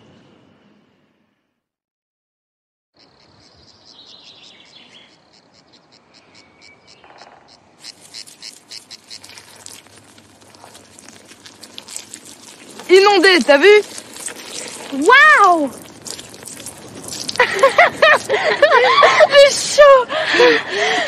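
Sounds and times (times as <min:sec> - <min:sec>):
insects chirping: 0:03.0 - 0:15.0.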